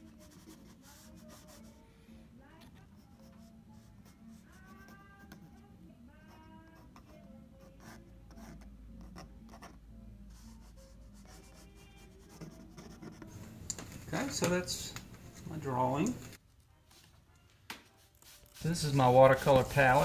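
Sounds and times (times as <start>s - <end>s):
quill pen scratching on paper: 0.0s - 1.8s, 6.3s - 9.8s, 10.4s - 13.7s.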